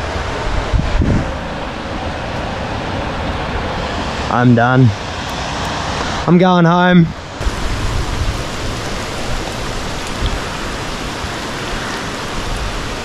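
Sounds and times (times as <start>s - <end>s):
low rumble: 0.0s - 6.5s
rain hissing: 0.0s - 13.0s.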